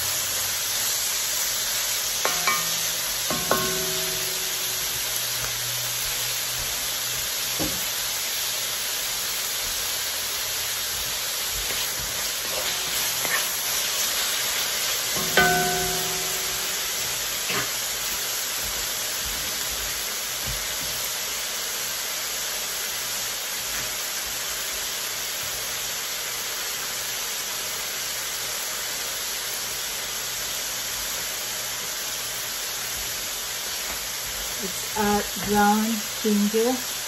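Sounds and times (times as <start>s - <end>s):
vegetables sizzling in wok: 0.0s - 37.0s
wooden spatula striking wok: 2.2s - 5.5s, 11.5s - 20.8s.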